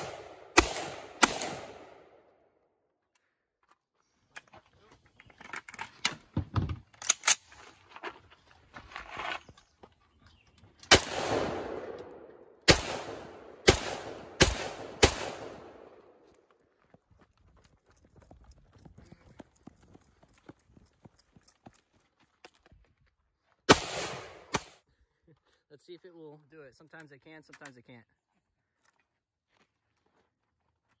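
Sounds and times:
rifle shots echoing: 0.0s - 2.3s, 10.9s - 16.2s, 23.7s - 24.8s
rifle handling clicks: 7.0s - 7.5s.

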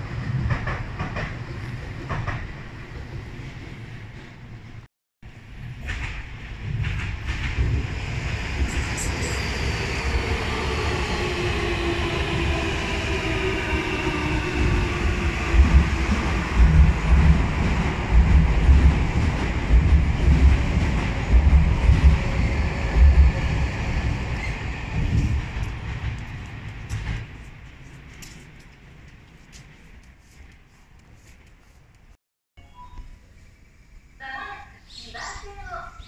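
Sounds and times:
train wheels clattering: 0.2s - 3.4s, 5.6s - 7.8s, 14.6s - 31.6s.

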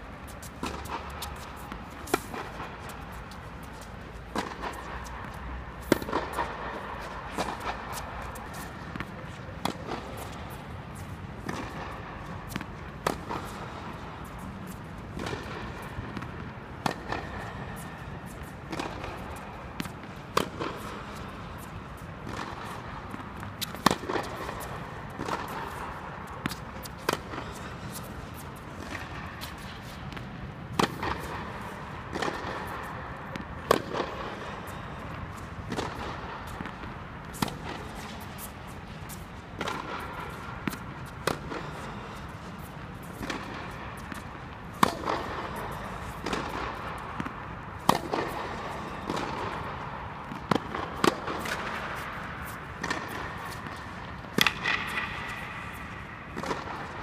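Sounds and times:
tennis balls popping off rackets: 43.0s - 56.9s.

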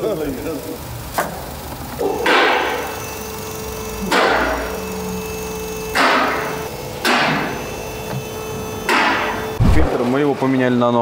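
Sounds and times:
steady machine hum: 0.0s - 10.4s
sharp knocks with rattling hiss: 1.1s - 1.5s, 2.2s - 2.9s, 5.9s - 7.6s, 8.9s - 9.4s.

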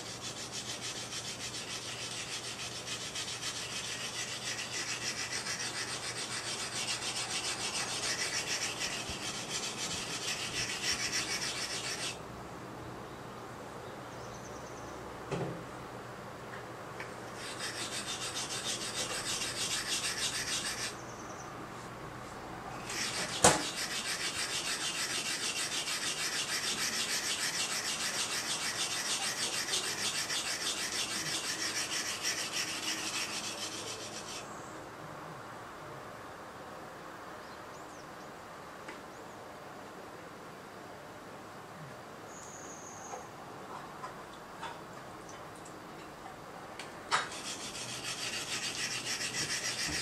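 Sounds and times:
knife scraping on whetstone: 0.0s - 12.2s, 17.4s - 21.0s, 22.8s - 34.4s, 47.1s - 50.0s
sharp knock: 23.4s - 23.7s.

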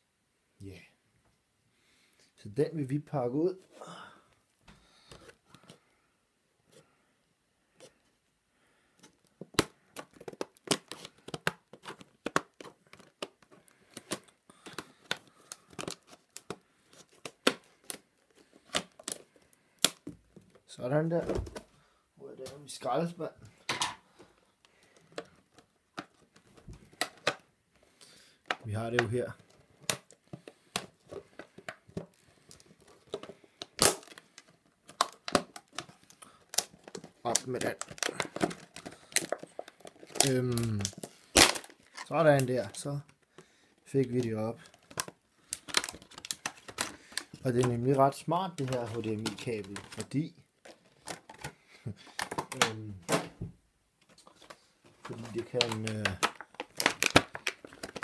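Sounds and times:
plastic packaging crinkling: 9.7s - 20.7s, 24.7s - 52.8s, 54.2s - 58.0s.

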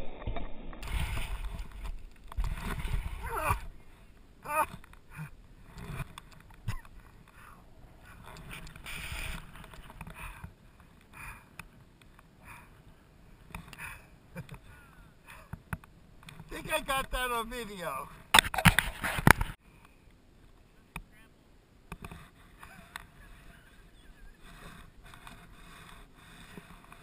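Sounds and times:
wind rumbling on microphone: 0.0s - 10.7s
rustling: 0.8s - 11.1s.

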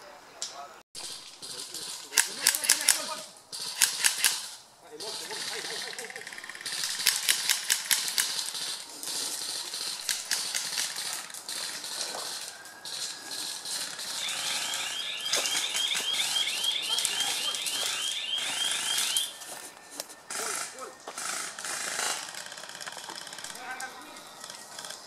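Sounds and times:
airsoft guns firing: 1.0s - 19.4s, 20.3s - 25.0s
electronic chirping alarm: 12.5s - 22.0s.

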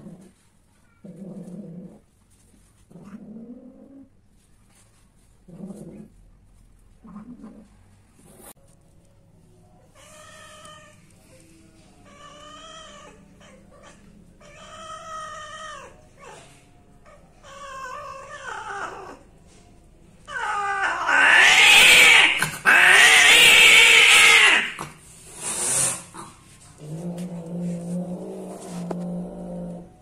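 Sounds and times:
cat yowling: 12.0s - 16.4s, 20.3s - 24.8s
cat screaming: 20.3s - 24.8s.

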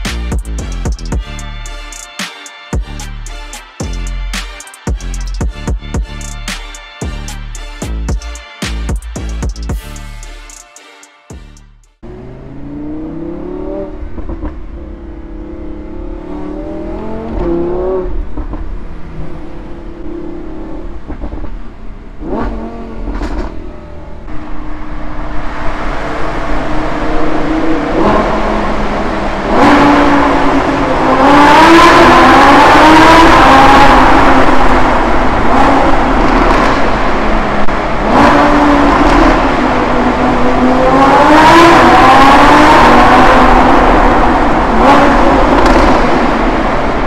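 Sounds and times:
sports car engine revving: 12.0s - 21.0s, 22.0s - 24.3s, 25.4s - 47.0s.

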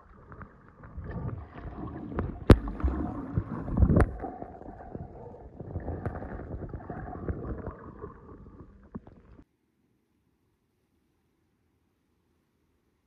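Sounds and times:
underwater water rumbling: 0.0s - 9.4s
underwater clicks and knocks: 0.3s - 9.4s.

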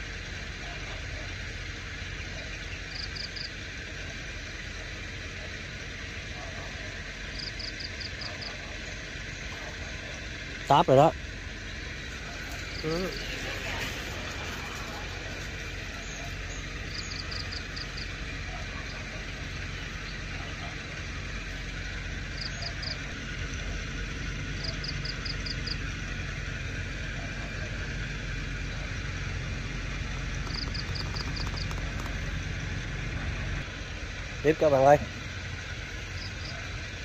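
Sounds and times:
low hum: 0.0s - 37.0s
rapid high-pitched clicking calls: 15.9s - 18.2s, 30.1s - 32.4s.

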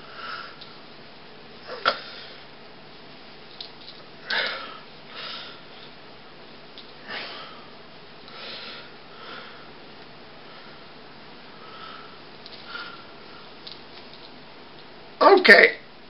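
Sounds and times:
person breathing: 4.2s - 5.9s, 7.0s - 9.8s, 11.5s - 13.6s.

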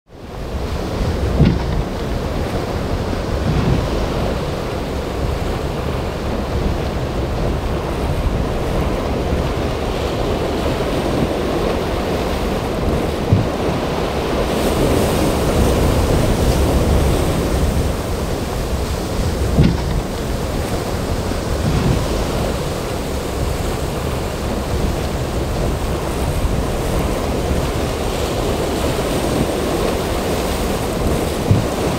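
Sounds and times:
waves breaking and churning: 0.1s - 31.9s
wind rumbling on microphone: 0.1s - 31.9s
brief thumps: 1.4s - 1.9s, 19.6s - 20.1s.

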